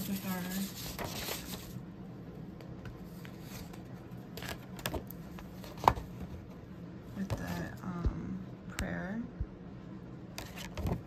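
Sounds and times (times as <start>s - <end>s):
card and packing material rustling: 0.0s - 1.8s.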